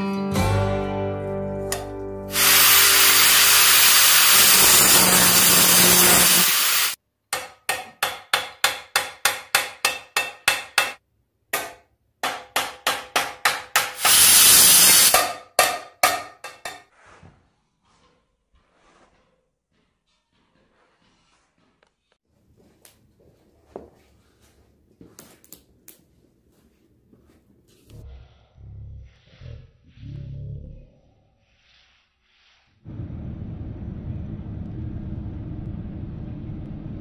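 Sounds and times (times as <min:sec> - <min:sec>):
guitar music: 0:00.0 - 0:02.4
loud hiss: 0:02.3 - 0:07.0, 0:14.0 - 0:15.2.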